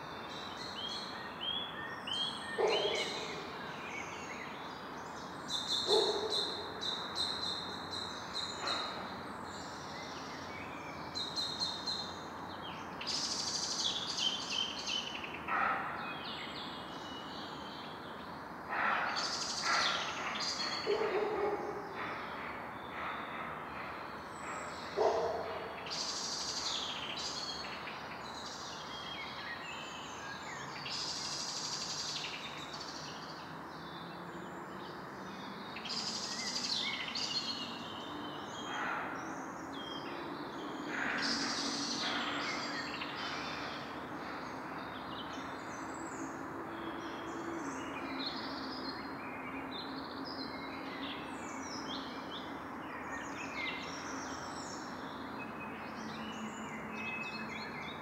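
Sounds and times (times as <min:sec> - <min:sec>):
birds chirping and calling: 0:02.0 - 0:04.2, 0:05.5 - 0:10.5, 0:18.7 - 0:33.2.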